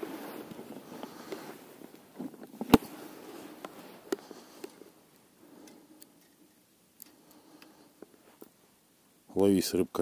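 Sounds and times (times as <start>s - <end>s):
fishing rod handling noises: 0.4s - 8.6s
faint clicks: 3.6s - 8.6s.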